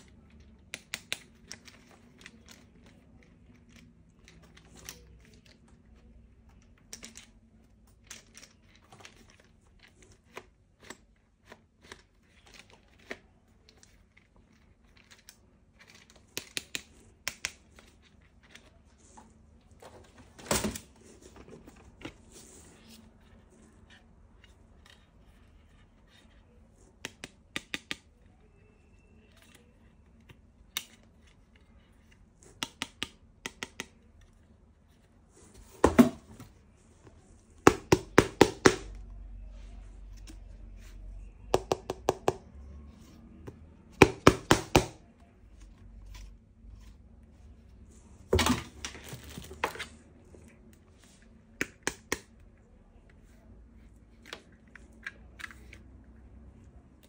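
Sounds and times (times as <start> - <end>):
plastic toy parts clicking: 0.1 - 5.6.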